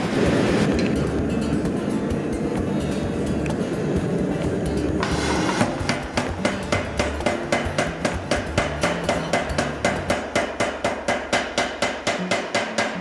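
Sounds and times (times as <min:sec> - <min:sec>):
power hammer striking metal: 0:05.0 - 0:13.0.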